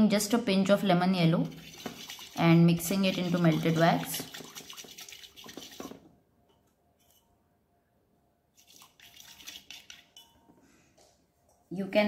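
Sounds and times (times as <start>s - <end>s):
wooden skewer stirring wax in pot: 1.5s - 6.0s.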